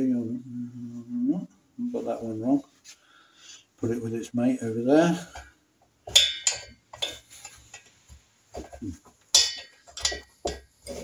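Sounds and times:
metal rocker arm clinking and rattling: 6.1 - 8.0, 9.3 - 11.0.

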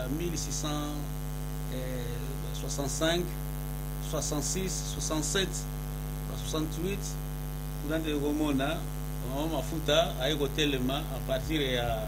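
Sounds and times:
man speaking: 0.0 - 1.1, 1.7 - 3.4, 4.0 - 5.7, 6.3 - 7.2, 7.8 - 12.0
electrical mains hum: 0.0 - 12.0.

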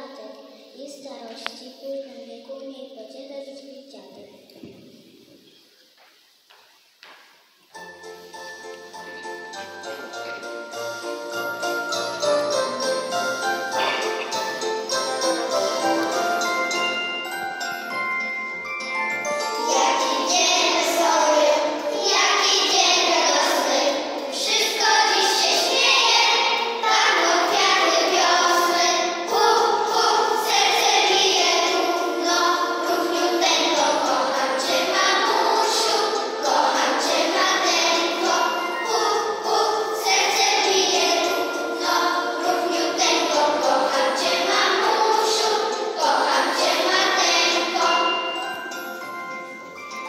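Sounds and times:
bell-like instrumental accompaniment: 7.8 - 22.2, 37.7 - 43.4, 46.6 - 50.0
children singing: 9.0 - 50.0.

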